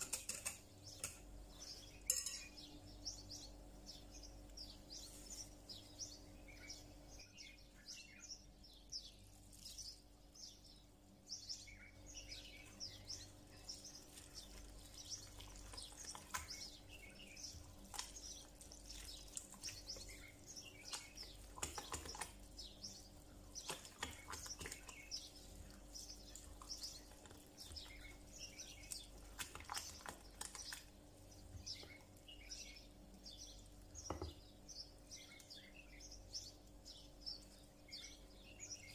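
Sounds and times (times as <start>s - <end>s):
spatula stirring batter in glass bowl: 0.0s - 2.5s, 13.1s - 31.0s
faint steady hum: 0.0s - 38.9s
small birds chirping: 0.0s - 38.9s.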